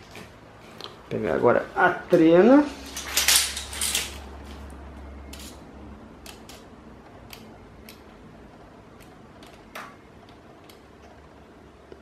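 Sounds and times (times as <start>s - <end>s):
small handling clicks and taps: 6.2s - 8.2s.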